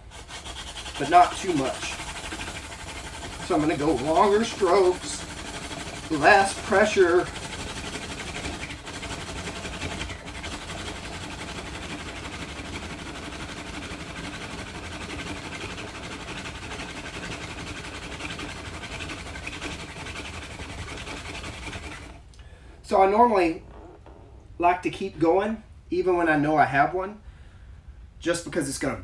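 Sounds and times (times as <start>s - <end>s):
wooden spindle grinding in fireboard: 0.0s - 22.3s.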